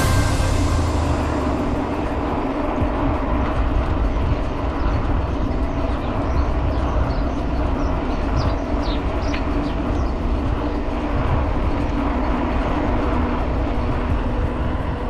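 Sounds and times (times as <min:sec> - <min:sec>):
steady low hum: 0:00.0 - 0:15.0
wind buffeting microphone: 0:00.0 - 0:15.0
bicycle rolling on road: 0:00.8 - 0:15.0.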